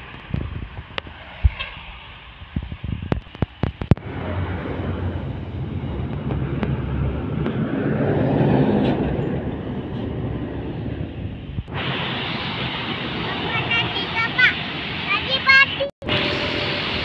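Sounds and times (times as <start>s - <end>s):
dump truck passing: 3.9s - 17.0s.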